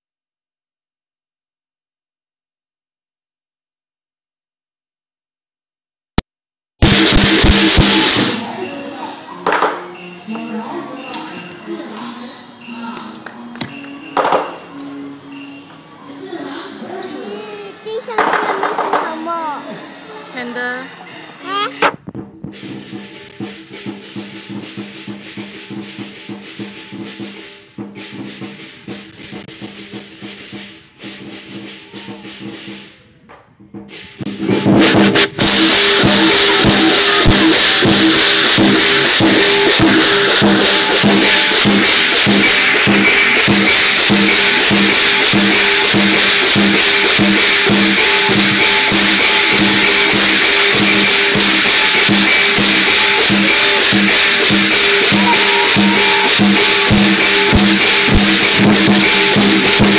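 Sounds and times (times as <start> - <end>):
drum beat: 6.8 - 8.6, 17.9 - 19.6, 21.4 - 32.9, 33.6 - 59.9
cymbals clashing: 6.8 - 20.7, 22.5 - 33.1, 33.8 - 59.9.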